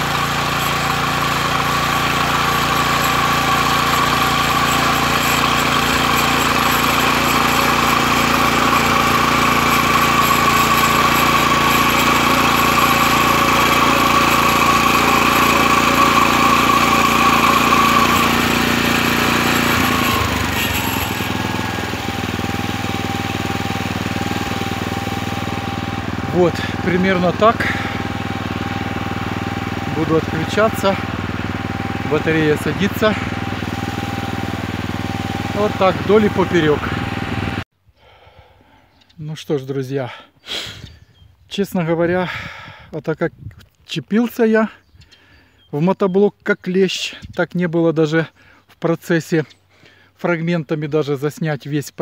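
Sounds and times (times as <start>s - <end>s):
tiller petrol engine running: 0.0s - 37.6s.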